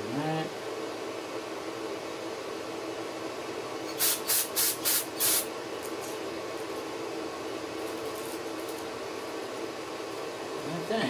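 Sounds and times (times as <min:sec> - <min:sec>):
aerosol spray hissing: 0:03.9 - 0:05.5.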